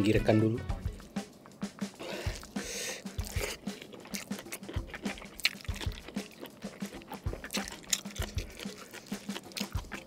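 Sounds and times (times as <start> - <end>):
fingers squishing rice: 2.3 - 10.0
wet chewing and mouth smacks: 2.3 - 10.0.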